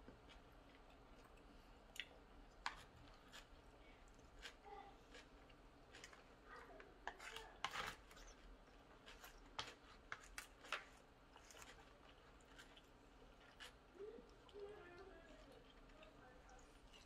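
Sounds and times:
chopsticks scraping plastic tray: 0:06.8 - 0:12.8.

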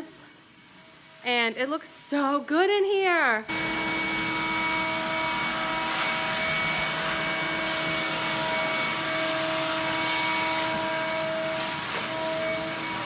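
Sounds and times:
shop vac whining: 0:03.3 - 0:13.0.

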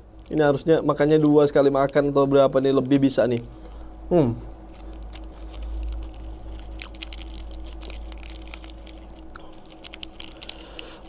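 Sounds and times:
plastic wrapper crinkling and tearing: 0:00.1 - 0:03.6, 0:04.6 - 0:11.0.

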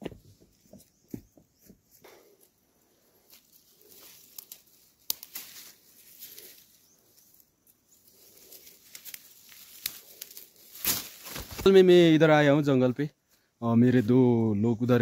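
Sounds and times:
leaves rustling: 0:01.9 - 0:12.5.

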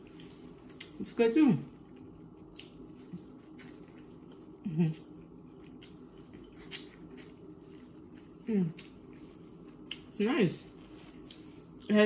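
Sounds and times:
person chewing corn on the cob: 0:00.0 - 0:01.0, 0:01.6 - 0:12.0.

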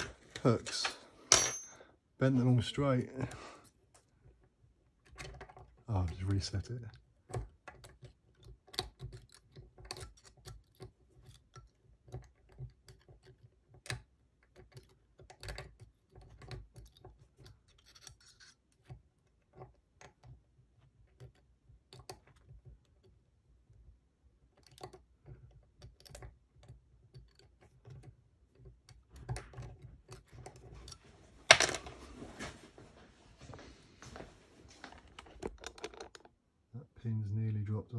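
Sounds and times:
lock picks clicking and scratching: 0:04.3 - 0:23.2, 0:24.4 - 0:31.0, 0:34.9 - 0:36.4.

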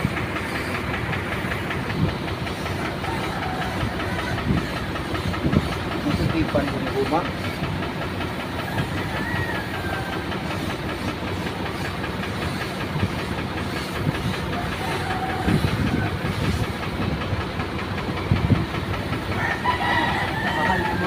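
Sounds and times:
paint spray gun hissing: 0:00.0 - 0:07.8, 0:09.5 - 0:16.9
mechanical running sound: 0:00.0 - 0:21.0.

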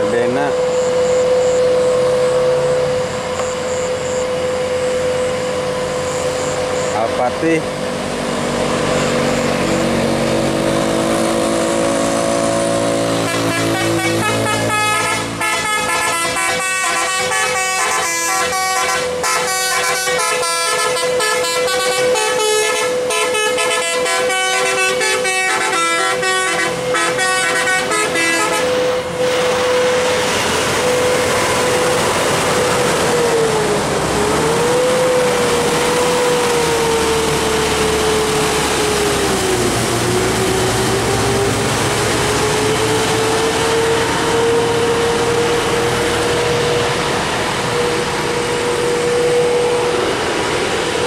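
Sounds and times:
bus engine running: 0:00.0 - 0:51.0
musical air horn tune: 0:13.1 - 0:29.0.

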